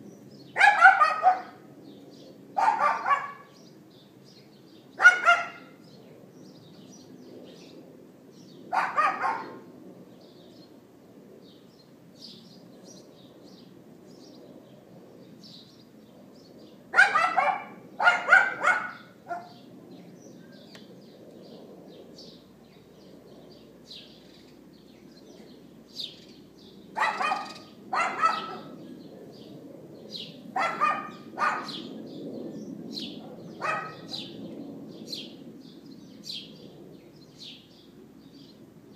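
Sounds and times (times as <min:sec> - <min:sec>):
small birds chirping: 0:00.0 - 0:38.9
dog yapping: 0:00.6 - 0:01.6, 0:02.6 - 0:03.6, 0:05.0 - 0:05.8, 0:08.7 - 0:09.6, 0:17.0 - 0:19.6, 0:27.0 - 0:28.8, 0:30.6 - 0:31.8, 0:33.6 - 0:34.4.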